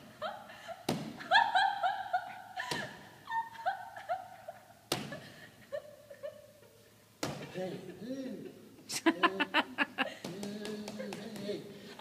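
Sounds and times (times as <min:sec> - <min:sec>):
girl sobbing: 0:00.0 - 0:06.5.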